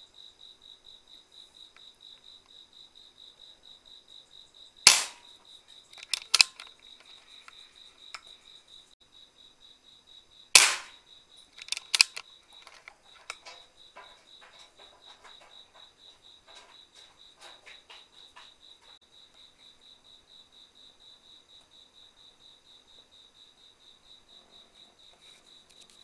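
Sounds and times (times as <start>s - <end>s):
crickets chirping: 0.0s - 26.0s
air rifle shots: 4.8s - 5.3s, 6.0s - 6.6s, 10.6s - 11.0s, 11.6s - 12.2s
quick sharp clicks: 4.9s - 5.2s, 5.9s - 6.7s, 10.6s - 11.0s, 11.6s - 13.5s.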